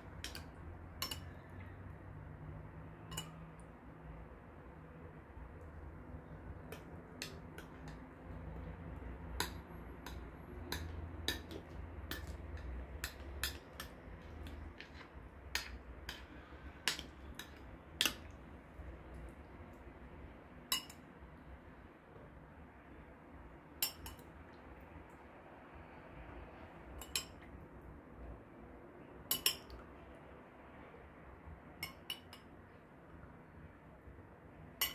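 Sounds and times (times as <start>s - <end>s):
metal spoon clinking on glass: 0.2s - 1.4s, 3.0s - 3.5s, 20.7s - 21.0s, 23.8s - 24.3s, 27.0s - 27.4s, 29.3s - 29.8s, 31.8s - 32.5s.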